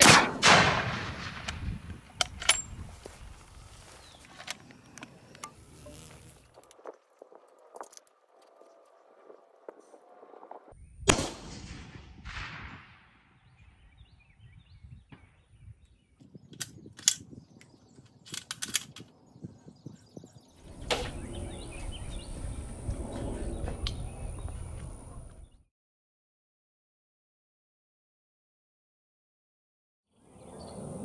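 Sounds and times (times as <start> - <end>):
rifle shot: 0.0 - 2.7, 11.0 - 13.4.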